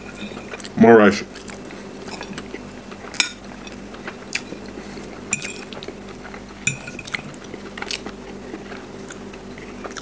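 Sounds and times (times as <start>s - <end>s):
quiet chewing: 0.0s - 10.0s
fork clinking on plate: 5.3s - 5.7s, 6.7s - 7.2s.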